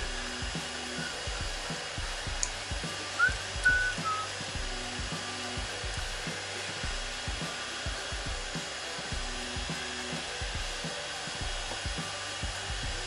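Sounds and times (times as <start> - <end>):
electric blower running: 0.0 - 13.0.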